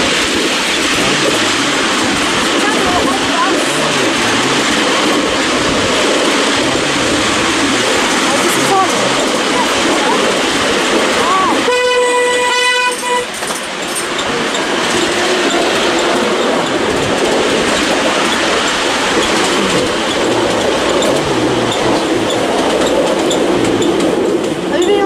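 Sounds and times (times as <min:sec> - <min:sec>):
train wheels clattering on rails: 0:00.0 - 0:25.0
train horn: 0:11.5 - 0:13.4.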